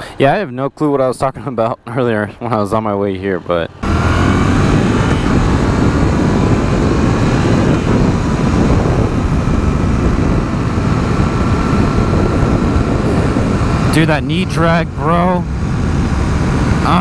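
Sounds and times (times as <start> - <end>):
motorcycle engine running: 3.7 - 17.0
wind rushing on microphone: 3.8 - 17.0.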